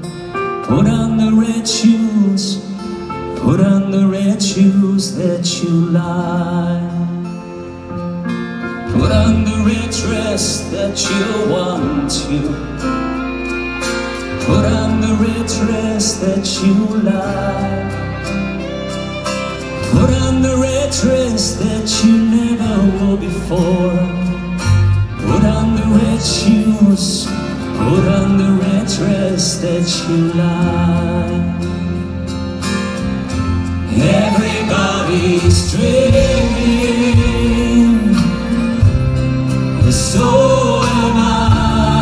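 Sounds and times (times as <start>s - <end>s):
guitar: 0.0s - 42.0s
strings: 0.0s - 42.0s
person singing: 8.8s - 32.0s, 33.8s - 42.0s.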